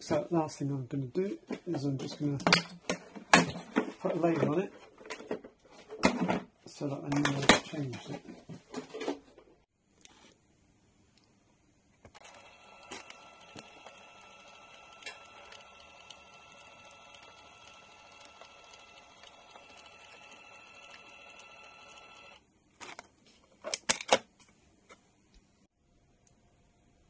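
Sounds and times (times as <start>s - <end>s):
label printer motor whine: 12.1s - 22.4s.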